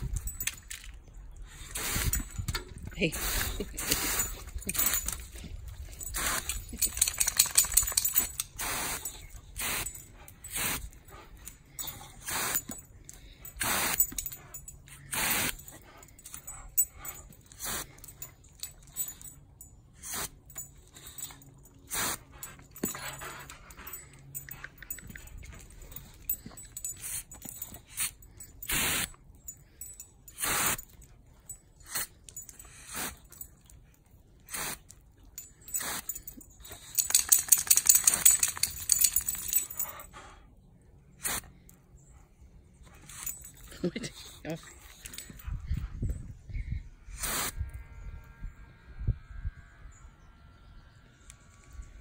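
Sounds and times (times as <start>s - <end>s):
rapid metallic jingling: 0.0s - 34.0s, 35.0s - 40.4s, 42.0s - 46.4s
dog huffing and snorting: 1.5s - 19.3s.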